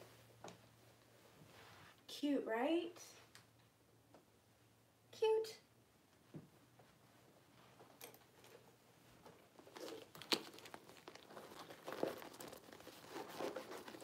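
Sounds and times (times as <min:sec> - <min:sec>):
purse rustling and crinkling: 0:08.1 - 0:14.0.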